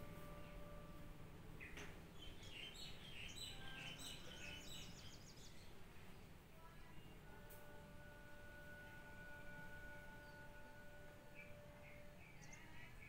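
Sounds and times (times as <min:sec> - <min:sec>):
low background rumble: 0:00.0 - 0:13.0
small birds chirping: 0:01.5 - 0:07.2, 0:10.1 - 0:13.0.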